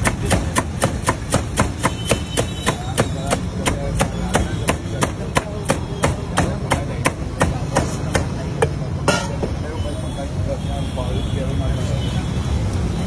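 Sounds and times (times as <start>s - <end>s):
rhythmic sharp knocking: 0.0s - 8.3s
low street noise: 0.0s - 13.0s.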